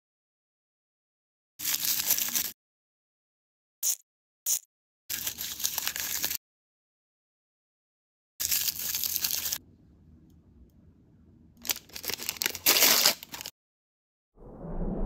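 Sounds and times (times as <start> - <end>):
plastic packaging tearing and crumpling: 1.6 - 2.6, 5.1 - 6.4, 8.4 - 9.6, 11.6 - 13.5.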